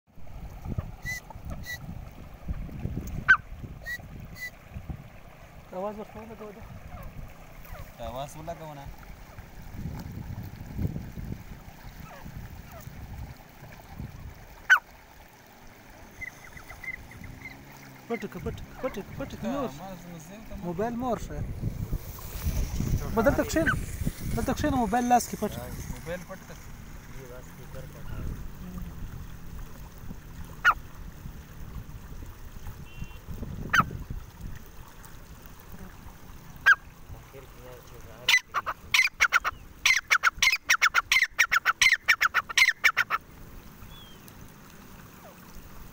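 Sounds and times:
francolin call: 0.9s - 1.9s, 3.2s - 4.6s, 16.1s - 19.2s, 32.8s - 33.9s, 38.3s - 43.2s.

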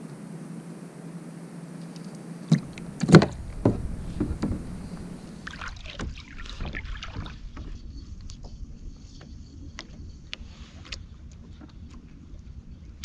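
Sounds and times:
hollow knocks on plastic kayak: 2.5s - 7.8s
soft ticks and rustling: 6.0s - 13.0s.

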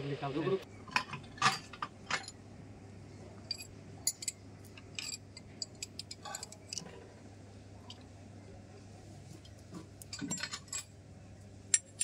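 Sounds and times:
wrench clinking on metal: 3.5s - 6.9s.

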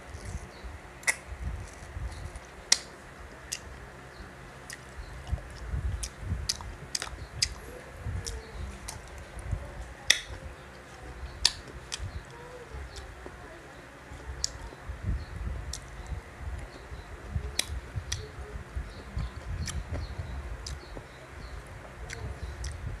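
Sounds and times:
sharp mouth clicks: 1.0s - 2.9s, 4.7s - 10.4s, 17.5s - 18.4s
wet chewing and lip smacks: 1.0s - 2.9s, 4.7s - 7.6s, 15.7s - 16.7s, 17.4s - 18.3s, 21.8s - 22.9s.

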